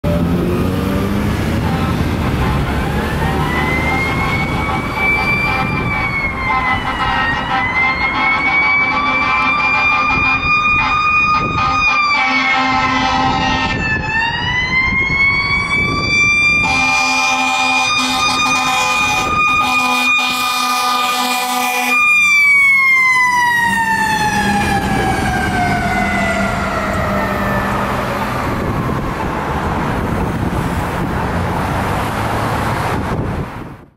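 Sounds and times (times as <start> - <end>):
fire truck siren winding: 1.0 - 31.0
air horn blasts: 1.6 - 13.8, 16.5 - 22.2.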